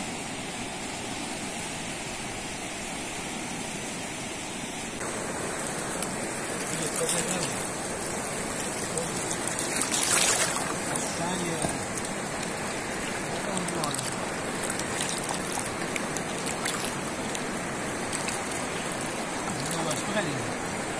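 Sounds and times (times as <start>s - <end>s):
river rushing: 0.0s - 20.9s
water splashing on rocks: 5.0s - 20.9s.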